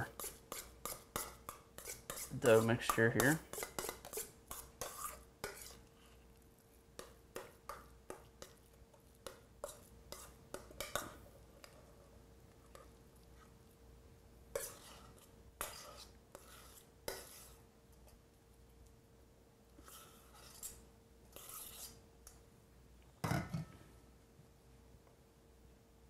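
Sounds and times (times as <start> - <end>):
spoon scraping metal pot: 0.0 - 5.9, 9.2 - 12.0, 14.5 - 17.6, 19.8 - 22.0
faint steady hum: 0.0 - 26.0.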